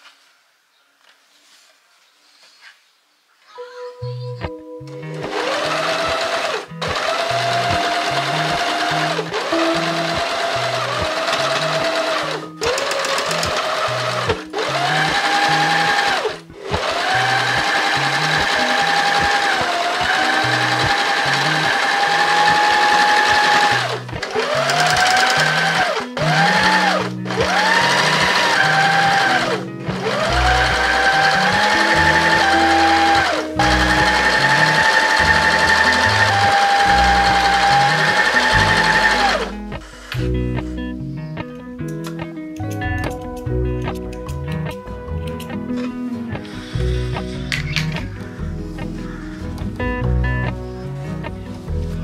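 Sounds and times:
sewing machine stitching fabric: 5.3s - 39.5s.

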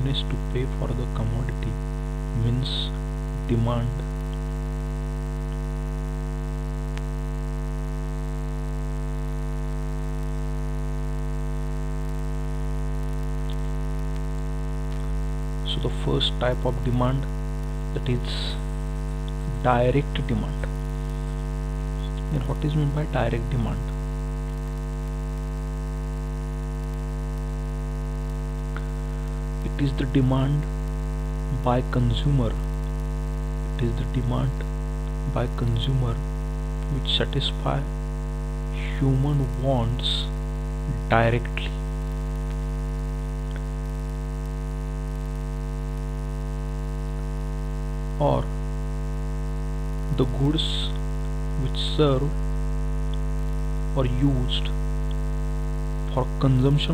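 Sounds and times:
person speaking: 0.0s - 4.2s, 15.0s - 21.4s, 22.0s - 24.0s, 29.6s - 30.7s, 31.5s - 32.6s, 33.8s - 36.2s, 36.9s - 37.9s, 38.7s - 41.9s, 48.2s - 48.6s, 50.1s - 51.0s, 51.6s - 52.4s, 53.9s - 54.8s, 56.1s - 56.9s
electrical mains hum: 0.0s - 56.9s.

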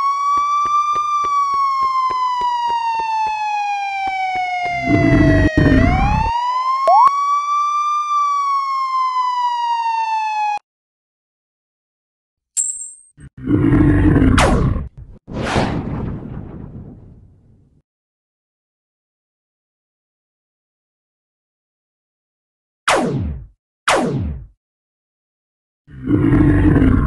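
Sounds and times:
wailing alarm siren: 0.0s - 10.6s
rumbling noise burst: 14.7s - 17.8s.

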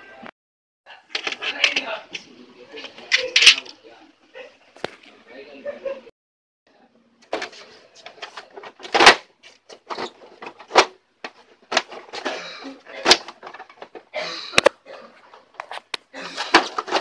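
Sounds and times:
plastic printer parts clicking and scraping: 1.1s - 3.8s, 7.2s - 17.0s.

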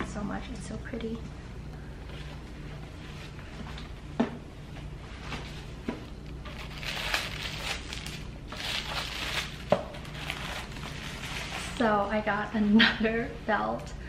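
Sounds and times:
paper rustling and crinkling: 5.2s - 12.0s.

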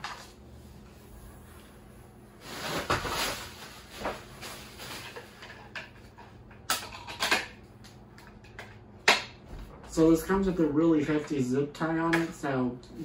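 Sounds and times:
packaging scraping and rustling: 2.4s - 5.7s.

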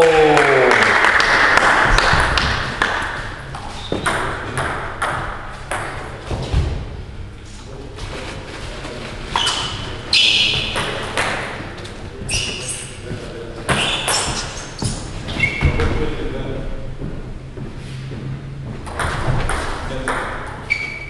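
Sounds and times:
table tennis ball bouncing: 1.6s - 6.1s, 18.8s - 20.6s.

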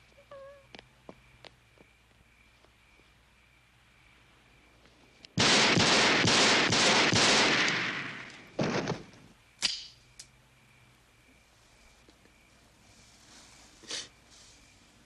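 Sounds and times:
rapid handgun fire: 5.4s - 8.9s
sharp click: 9.6s - 10.3s.

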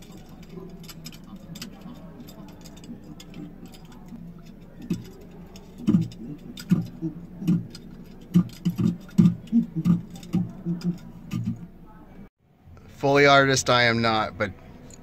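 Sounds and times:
man imitating ape calls: 5.7s - 11.6s.

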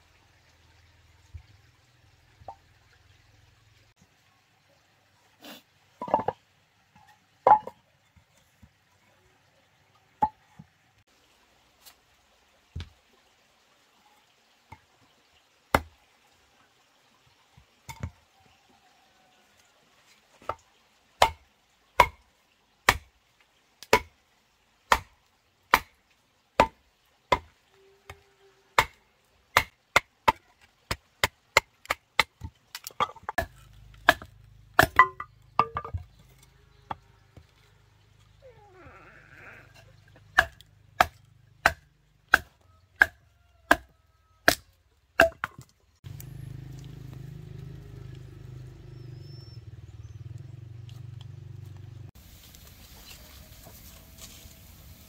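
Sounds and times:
chopping strikes: 33.3s - 36.0s, 40.4s - 43.9s.

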